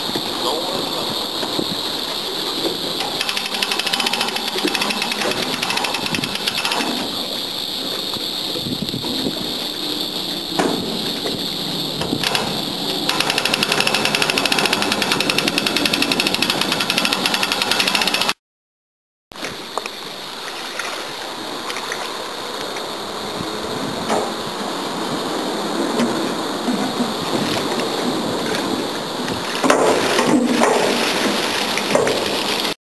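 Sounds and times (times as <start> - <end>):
ratchet winch clicking: 3.0 - 7.1, 12.2 - 18.4.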